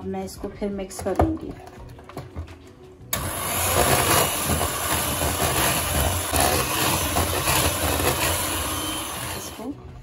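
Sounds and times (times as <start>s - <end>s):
hand mixer whipping batter: 3.2s - 9.7s.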